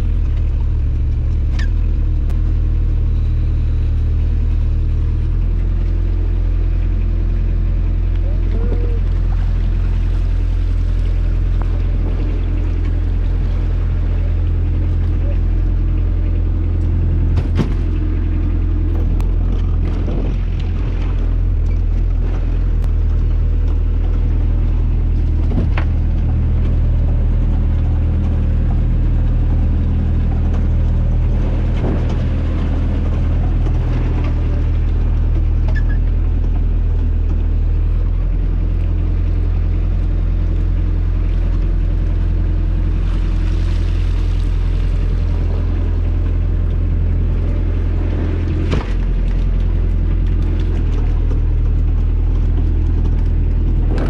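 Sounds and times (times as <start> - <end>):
boat engine idling: 0.0 - 54.0.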